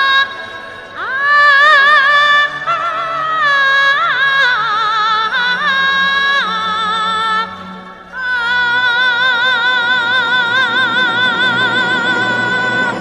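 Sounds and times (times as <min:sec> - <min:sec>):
solo melody with wide vibrato: 0:00.0 - 0:13.0
low orchestral accompaniment: 0:07.5 - 0:13.0.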